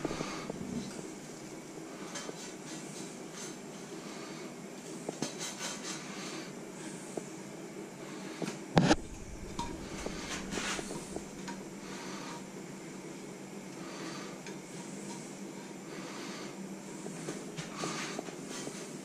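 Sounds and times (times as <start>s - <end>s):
steady low hum: 0.0s - 5.2s, 6.2s - 19.0s
buns scraping in frying pans: 8.8s - 12.4s.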